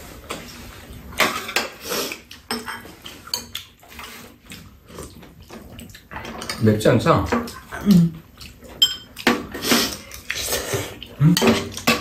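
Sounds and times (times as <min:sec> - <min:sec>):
utensils clinking on ceramic bowls: 0:02.5 - 0:03.6, 0:06.2 - 0:10.2.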